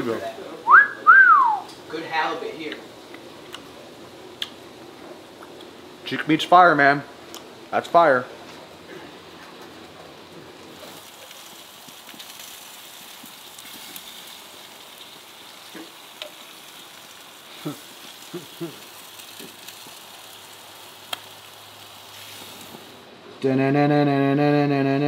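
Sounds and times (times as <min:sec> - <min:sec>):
fish sizzling on a grill: 0:01.8 - 0:07.1, 0:07.7 - 0:23.1
utensil clicking on grill grate: 0:11.2 - 0:14.3, 0:15.0 - 0:16.5, 0:18.2 - 0:21.6.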